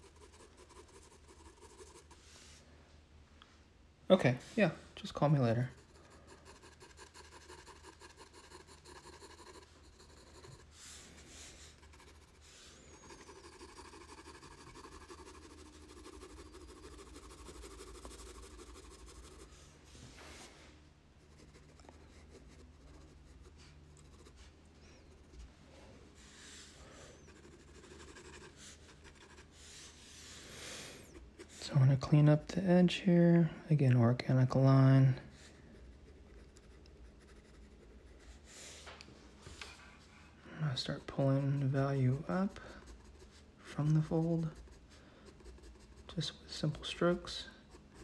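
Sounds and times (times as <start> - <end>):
pencil scratching on paper: 0.0 - 2.5, 5.5 - 19.7, 21.2 - 24.5, 26.2 - 31.7, 35.5 - 38.5, 40.7 - 48.0.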